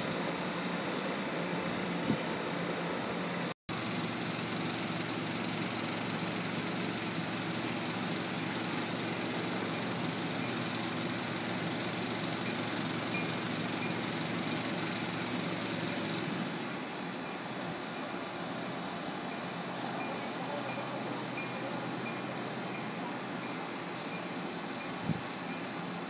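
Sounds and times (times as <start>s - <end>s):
engine idling: 3.7s - 17.2s.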